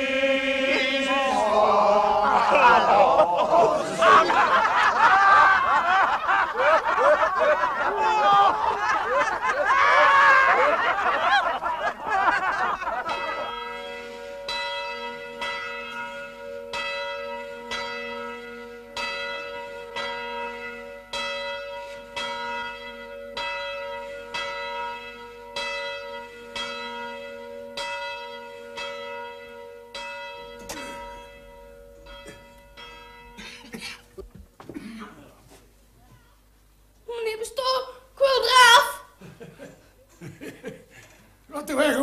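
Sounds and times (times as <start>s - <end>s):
church bell ringing: 10.4s - 34.0s.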